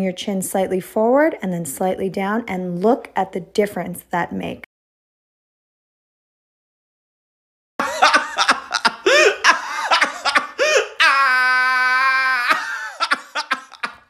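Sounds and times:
man laughing loudly: 7.8s - 14.0s.

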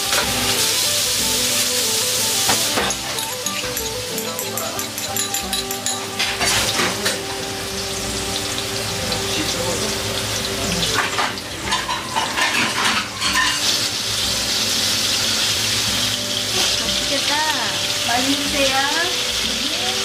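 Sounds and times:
food sizzling in a wok: 0.0s - 20.0s
utensil clattering against wok: 2.4s - 7.3s, 10.4s - 13.8s.

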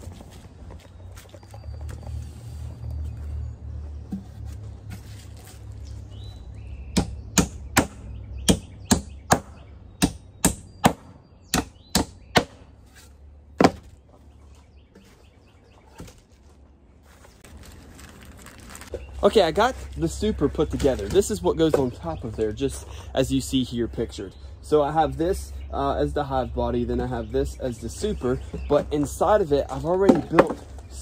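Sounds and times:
hammer striking nails into wood: 7.0s - 12.6s.

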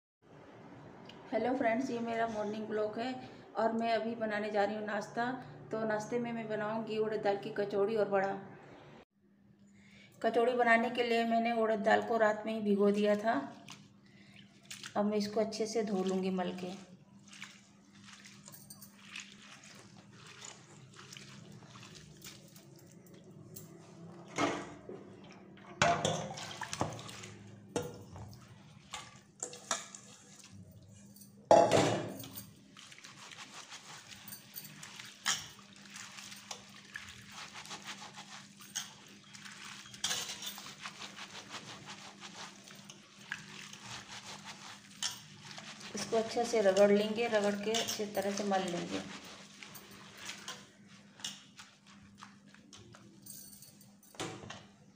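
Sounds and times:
hands swishing lentils in water: 13.2s - 15.0s, 15.6s - 24.0s, 26.4s - 27.5s, 32.6s - 53.2s
water splashing: 13.4s - 23.3s, 24.1s - 30.6s, 32.6s - 53.0s
water pouring: 15.7s - 30.8s, 32.2s - 53.0s.

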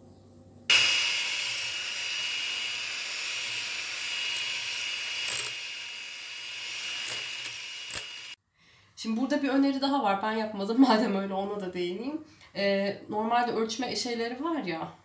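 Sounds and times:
electric hand mixer whipping cream: 0.7s - 8.4s.

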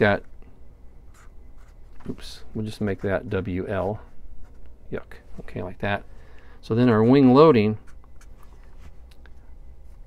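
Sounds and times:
low steady hum: 0.0s - 10.0s
marker writing on paper: 1.1s - 1.8s.

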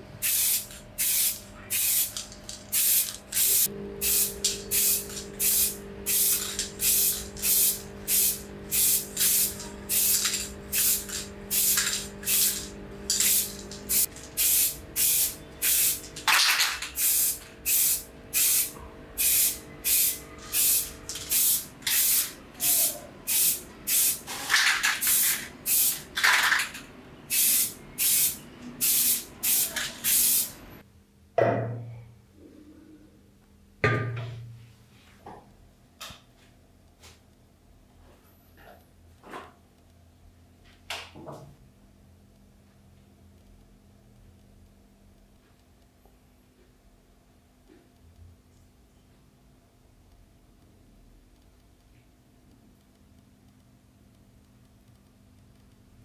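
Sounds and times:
spray paint can hissing bursts: 0.2s - 30.6s.

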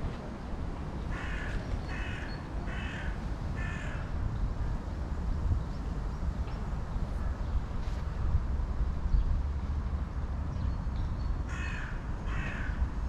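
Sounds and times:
crow cawing: 1.1s - 4.1s, 11.5s - 12.8s.

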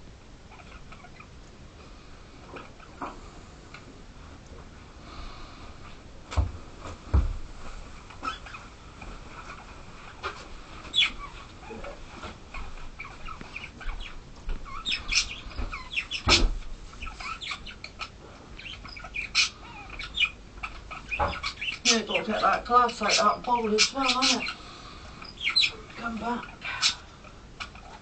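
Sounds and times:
small animal chirps and squeaks: 0.5s - 1.3s, 8.1s - 8.7s, 10.9s - 28.0s.

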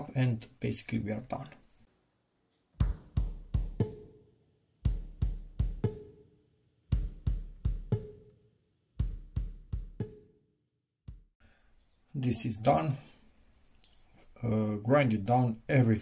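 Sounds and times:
drum beat with deep bass drum: 2.8s - 4.2s, 4.9s - 6.2s, 6.9s - 8.2s, 9.0s - 10.2s, 11.1s - 11.4s.

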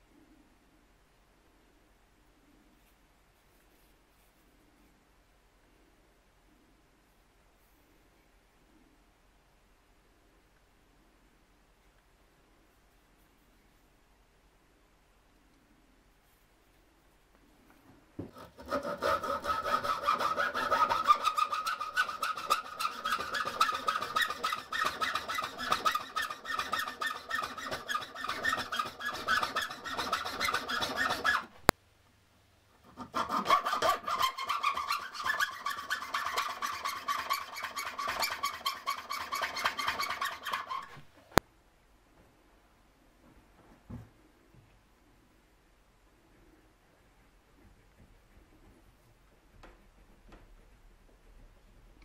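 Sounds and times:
hacksaw cutting wood: 18.3s - 31.5s, 32.9s - 41.0s.

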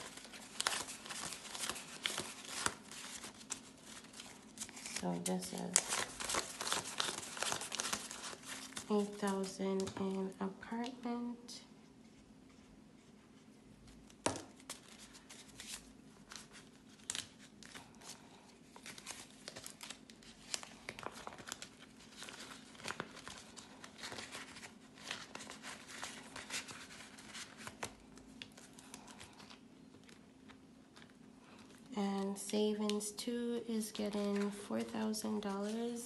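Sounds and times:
banknotes and plastic crinkling: 0.0s - 11.3s, 13.9s - 36.0s.

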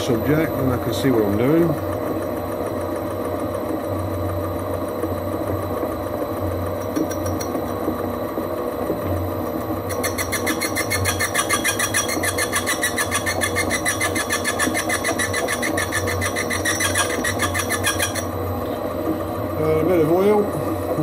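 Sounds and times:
lathe humming: 0.0s - 21.0s
fast mechanical clicking: 6.7s - 8.1s, 9.4s - 18.3s.

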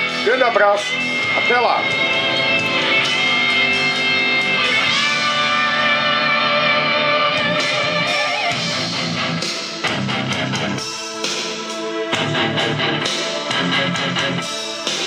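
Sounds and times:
guitar-led music on loudspeaker: 0.0s - 15.0s
plucked bass line: 1.1s - 8.0s.

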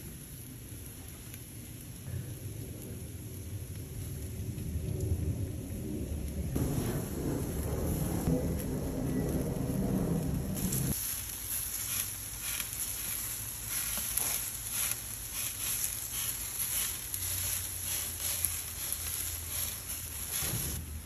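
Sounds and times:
small crackles: 0.5s - 2.1s, 2.8s - 20.8s
butter sizzling on grill: 6.6s - 21.0s.

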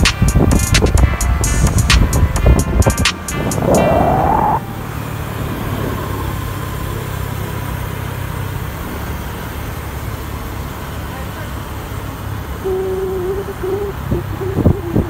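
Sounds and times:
wind on microphone: 0.0s - 7.4s, 13.4s - 15.0s
rising whine: 0.7s - 9.0s
bike tyres rolling on tarmac: 2.4s - 13.7s.

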